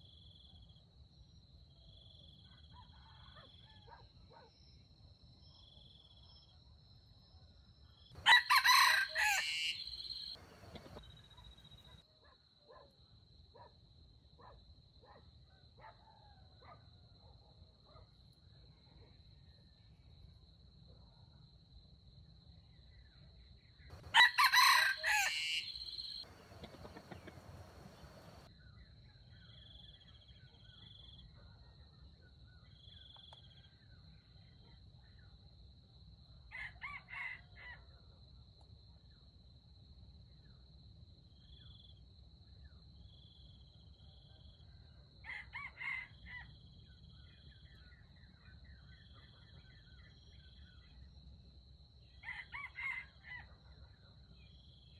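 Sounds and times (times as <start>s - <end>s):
rooster crowing: 8.2s - 11.0s, 24.0s - 28.5s.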